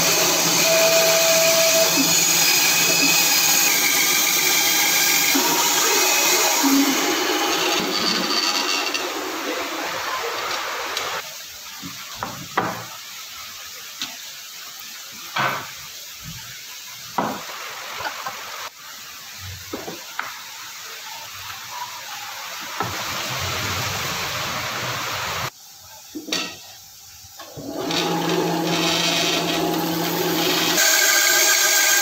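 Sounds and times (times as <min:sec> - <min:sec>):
bandsaw cutting wood: 0:00.0 - 0:11.2, 0:27.6 - 0:32.0
steady hiss: 0:02.4 - 0:27.6.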